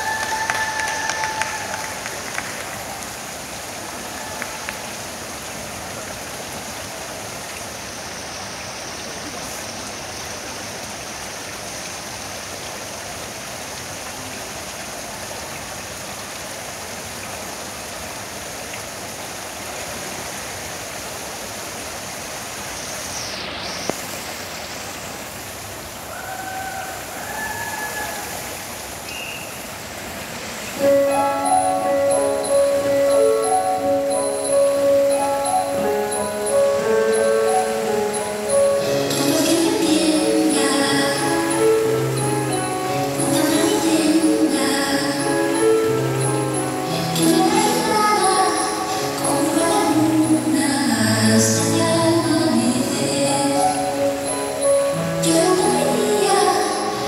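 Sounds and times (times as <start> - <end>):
swimming pool hall rushing ambience: 26.9 - 57.0.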